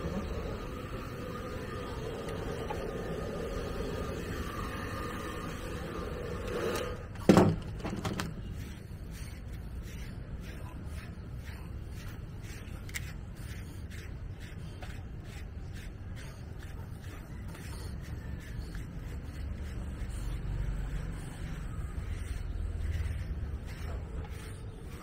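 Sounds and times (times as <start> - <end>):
brush stroking dog's coat: 8.2 - 25.0.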